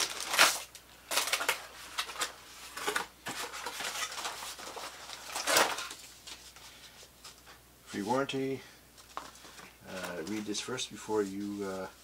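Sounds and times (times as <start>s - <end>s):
plastic wrap crinkling: 0.0s - 6.6s.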